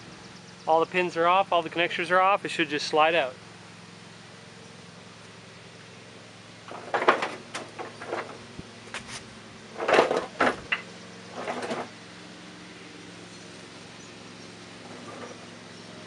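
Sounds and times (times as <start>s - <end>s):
mower deck scraping and clunking: 6.6s - 12.0s, 14.1s - 16.0s.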